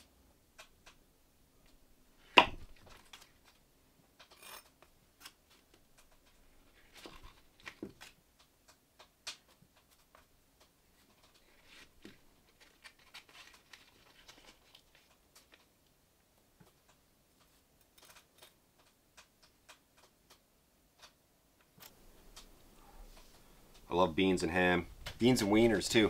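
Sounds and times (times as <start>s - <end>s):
sharp knock: 2.4s - 2.7s
paper wrapper crinkling: 11.2s - 15.7s.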